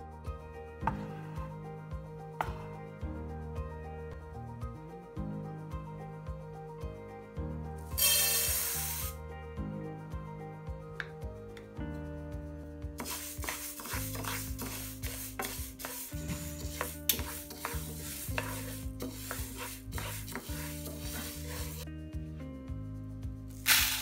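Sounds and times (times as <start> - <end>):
background music: 0.0 - 24.0
spatula stirring dry lentils: 13.0 - 21.9.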